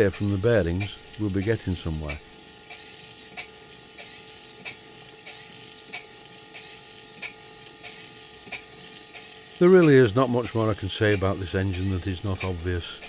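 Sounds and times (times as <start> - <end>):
model steam engine clicking and hissing: 0.0 - 13.0.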